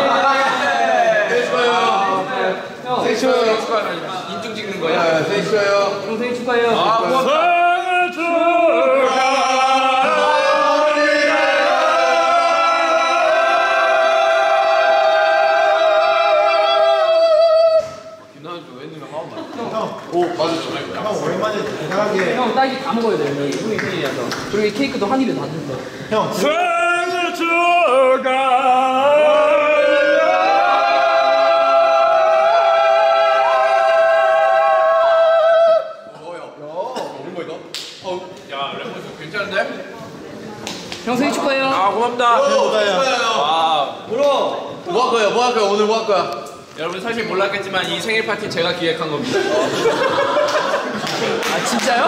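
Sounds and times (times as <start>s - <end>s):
voices singing unaccompanied: 7.2s - 18.2s, 26.4s - 36.1s.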